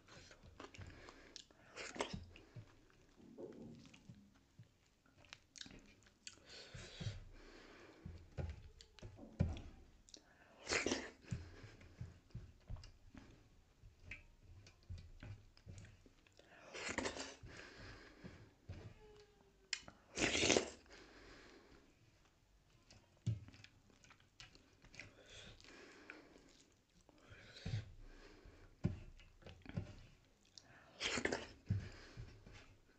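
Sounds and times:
wet chewing with small clicks: 0.0s - 20.9s, 21.7s - 32.9s.

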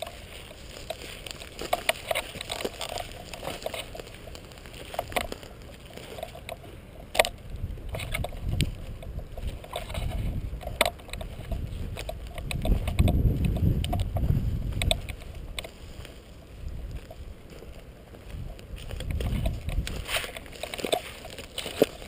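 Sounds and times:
sharp clicks: 0.0s - 15.8s
footsteps through dry grass: 0.0s - 22.0s
wind rumble on microphone: 7.2s - 22.0s.

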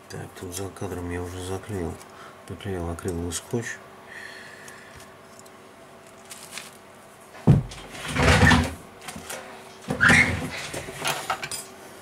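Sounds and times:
plastic parts scraping and rustling: 5.3s - 6.8s, 7.7s - 11.5s.

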